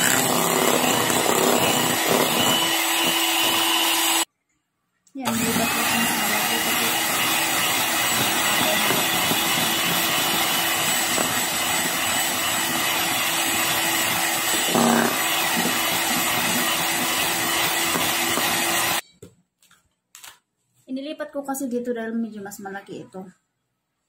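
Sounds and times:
electric hand mixer whipping: 0.0 - 4.3, 5.3 - 19.0.

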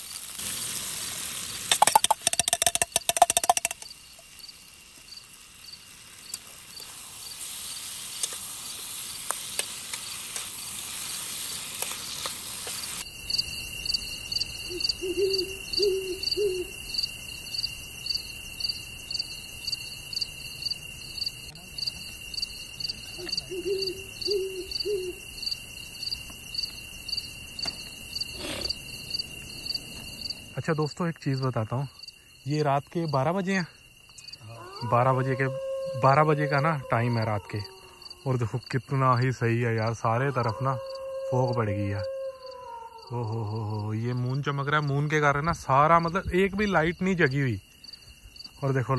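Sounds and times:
food sizzling in a wok: 0.0 - 2.4, 3.9 - 14.6
crickets chirping: 0.0 - 48.9.

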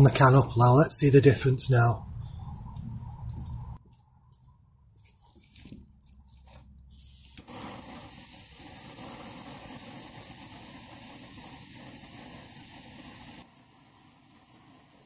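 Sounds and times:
gas burner hissing: 6.9 - 15.0.

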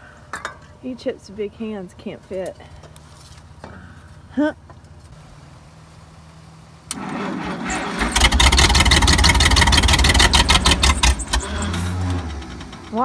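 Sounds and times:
engine cranking by starter: 6.9 - 13.0.

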